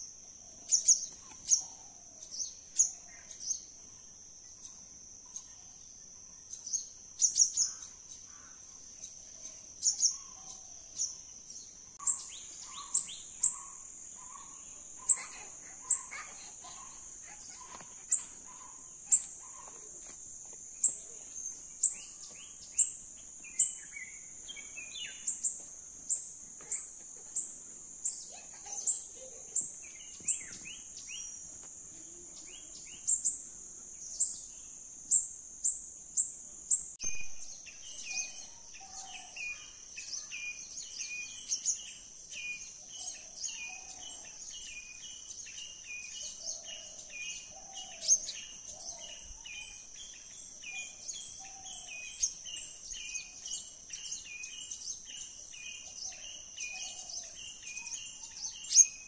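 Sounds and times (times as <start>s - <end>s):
insect drone: 0.0s - 59.0s
small birds chirping: 0.0s - 59.0s
lower bird calls: 12.0s - 41.8s.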